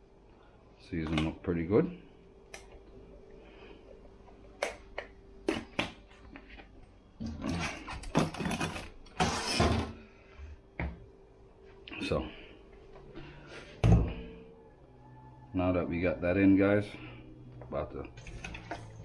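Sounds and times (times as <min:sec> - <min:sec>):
faint steady hum: 0:00.0 - 0:19.0
containers clattering in cupboard: 0:07.2 - 0:10.0.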